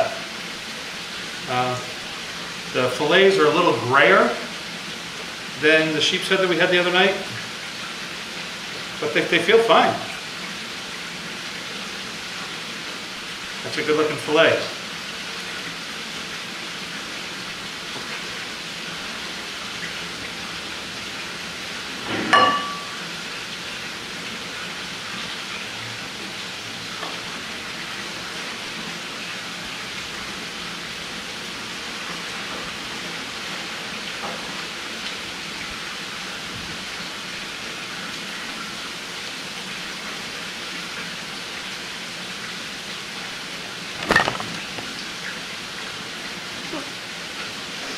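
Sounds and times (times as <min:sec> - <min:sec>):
sharp clink: 0:22.3 - 0:23.0.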